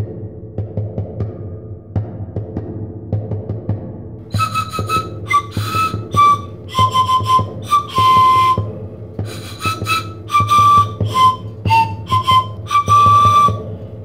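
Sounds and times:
breathy whistle-like melody: 4.3s - 14.0s.

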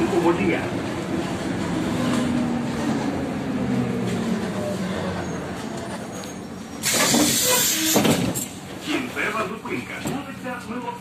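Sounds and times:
trolleybus motor hum: 0.0s - 11.0s
compressed air hiss: 6.8s - 8.0s.

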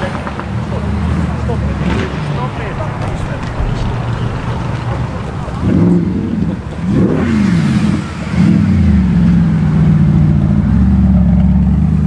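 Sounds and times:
car engine revving: 0.1s - 12.0s
car driving past: 1.7s - 9.8s.

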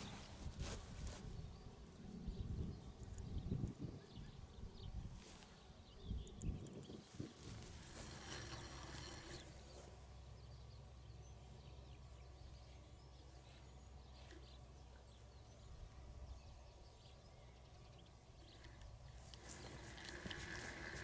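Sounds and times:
wind rumble on microphone: 0.0s - 9.4s, 19.3s - 21.0s
faint bird chirps: 0.0s - 21.0s.

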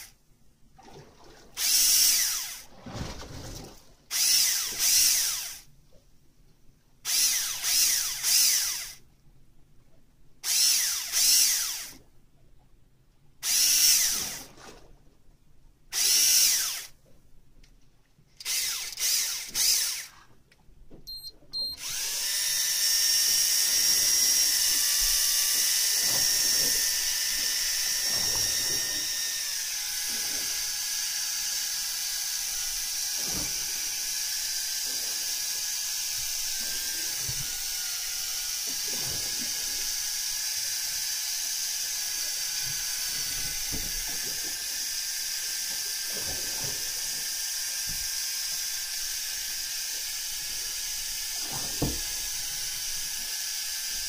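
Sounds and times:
electric fishing reel motor whine: 1.6s - 2.7s, 4.1s - 5.7s, 7.1s - 9.0s, 10.4s - 12.0s, 13.4s - 14.4s, 15.9s - 16.9s, 18.4s - 20.1s, 21.6s - 54.0s.

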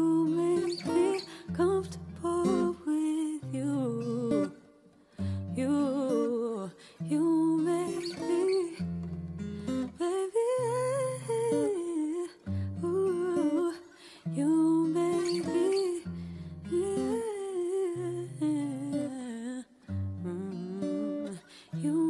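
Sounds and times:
acoustic guitar: 0.0s - 22.0s.

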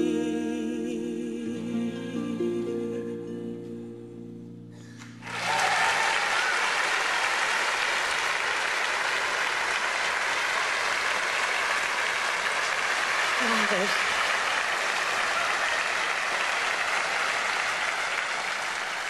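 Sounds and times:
slow song held notes: 0.0s - 5.0s
audience applause: 5.0s - 19.0s.

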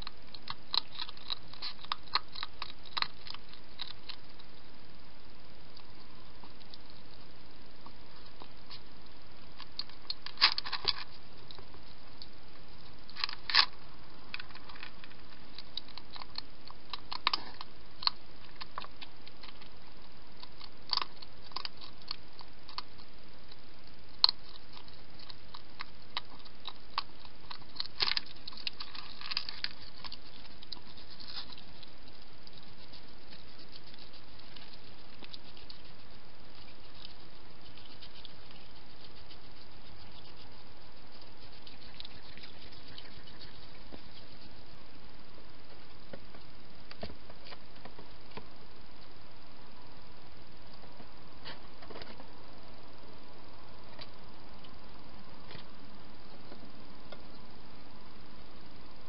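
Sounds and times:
hedgehog crunching dry food: 0.0s - 4.8s, 5.6s - 49.1s
steady hiss: 0.0s - 59.0s.

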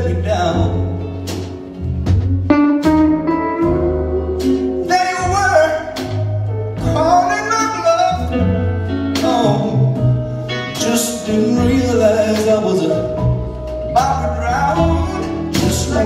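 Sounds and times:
live soul blues band: 0.0s - 16.0s
man singing long sliding notes: 4.8s - 6.2s, 13.9s - 16.0s.

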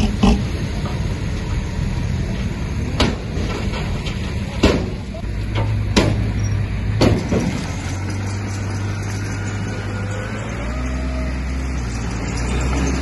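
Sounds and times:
diesel machine running: 0.0s - 13.0s
sharp metallic knocks: 4.6s - 6.4s.

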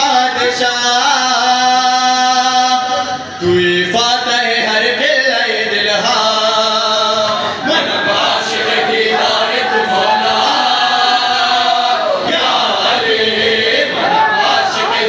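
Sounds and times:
men chanting together: 3.6s - 15.0s.

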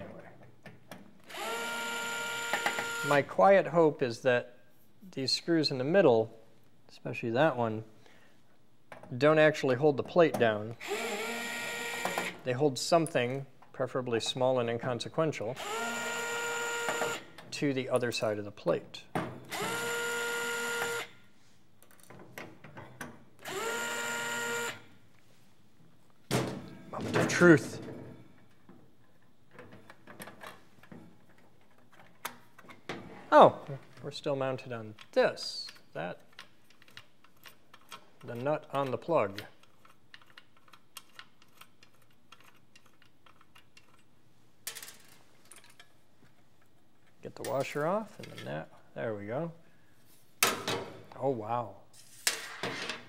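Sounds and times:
electric screwdriver whine: 1.3s - 3.2s, 10.8s - 12.3s, 15.6s - 17.2s, 19.5s - 21.1s, 23.4s - 24.8s.

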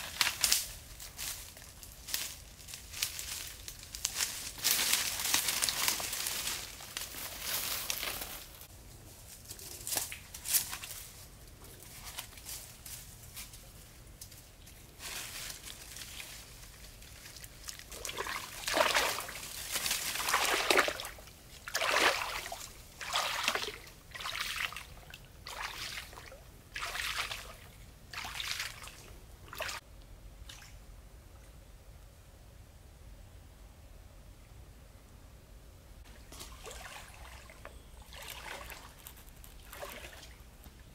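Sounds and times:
water sloshing around wading legs: 17.7s - 29.8s, 36.1s - 40.5s.

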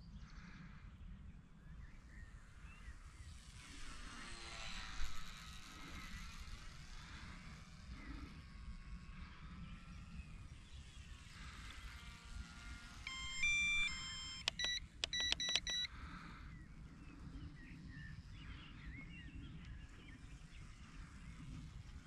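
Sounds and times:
small electric motor whine: 2.9s - 15.9s
electronic beeps: 13.1s - 15.9s.

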